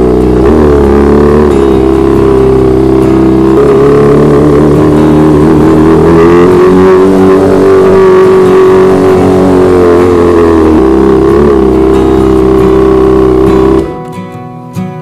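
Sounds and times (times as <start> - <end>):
motorcycle engine running: 0.0 - 14.0.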